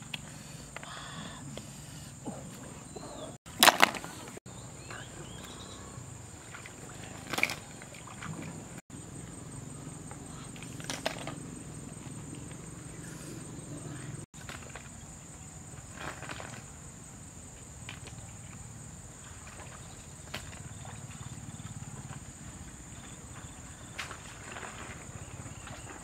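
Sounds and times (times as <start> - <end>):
insects trilling: 0.0 - 26.0
splashes and knocks in stream: 3.5 - 4.4, 6.4 - 8.8, 10.5 - 12.6, 14.3 - 15.2, 15.8 - 16.9, 17.8 - 26.0.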